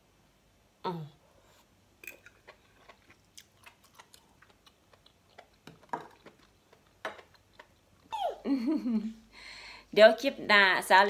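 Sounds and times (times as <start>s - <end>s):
person chewing: 1.6s - 8.1s.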